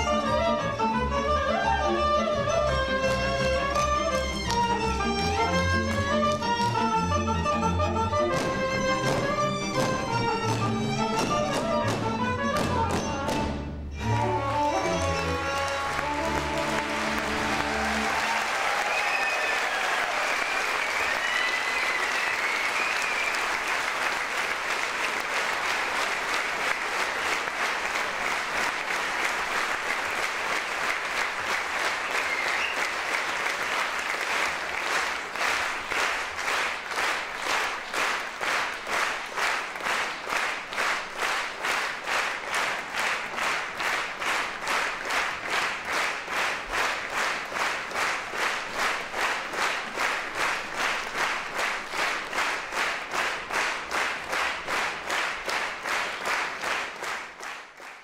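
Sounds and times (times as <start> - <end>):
rhythmic clapping in unison: 0.0 - 58.0
audience applauding: 1.5 - 7.3, 14.1 - 58.0
high voices cheering: 15.6 - 23.6.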